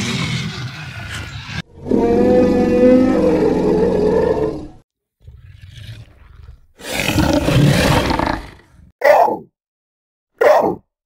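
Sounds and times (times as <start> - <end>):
animal roar: 1.7 - 9.4.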